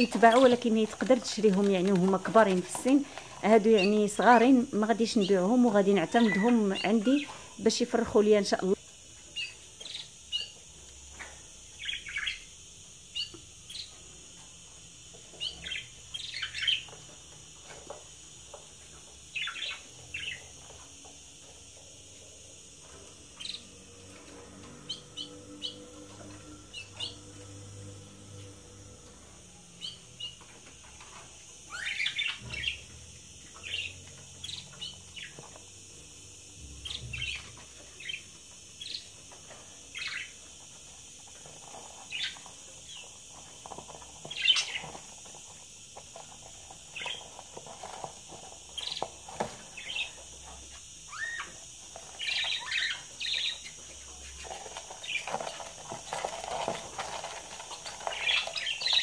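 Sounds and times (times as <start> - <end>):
budgerigars chirping: 6.0 - 7.4, 11.8 - 12.5, 15.4 - 17.0, 33.6 - 35.4, 52.2 - 53.8.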